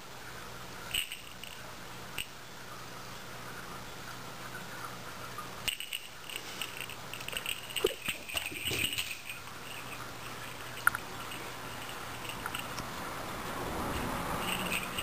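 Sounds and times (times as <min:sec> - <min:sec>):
cat toy bell jingling: 0:00.9 - 0:01.6, 0:05.7 - 0:12.8, 0:13.8 - 0:15.0.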